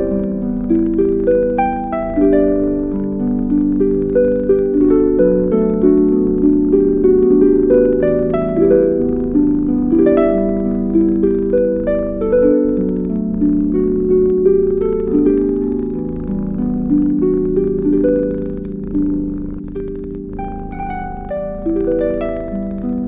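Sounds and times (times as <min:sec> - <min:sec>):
calm instrumental music: 0:00.0 - 0:23.0.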